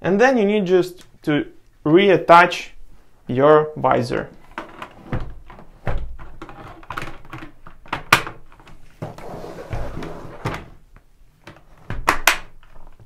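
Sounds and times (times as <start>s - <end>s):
plastic rubbing: 4.4s - 10.8s.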